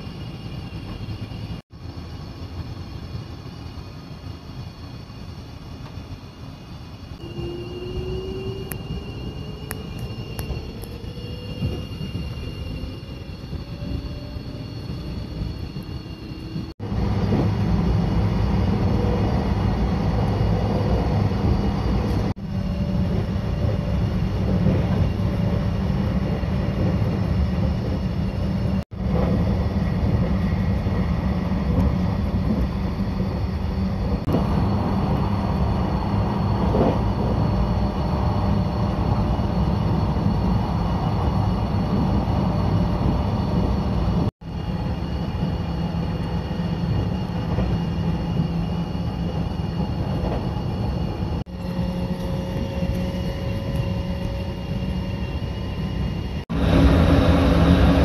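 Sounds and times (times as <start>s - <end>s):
train wheels rumbling on rail: 0.0s - 58.0s.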